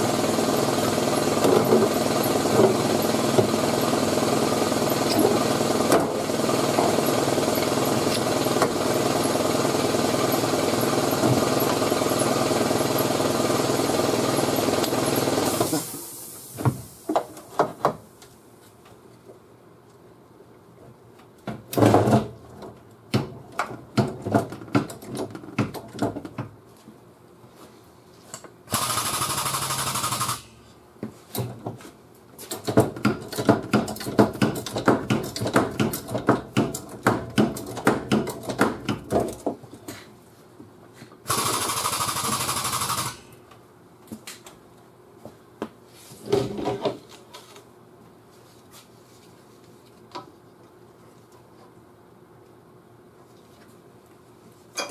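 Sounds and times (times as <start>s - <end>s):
air tool whirring: 0.3s - 16.6s, 28.7s - 30.6s, 41.3s - 43.4s.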